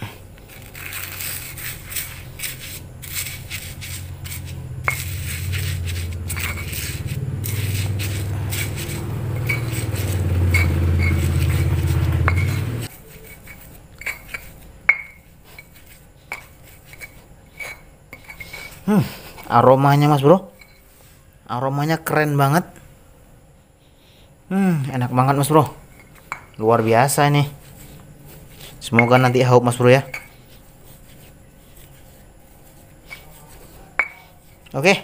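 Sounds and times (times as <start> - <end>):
stone pestle grinding in mortar: 0.0 - 19.5, 25.7 - 35.0
low rumble: 3.3 - 12.9.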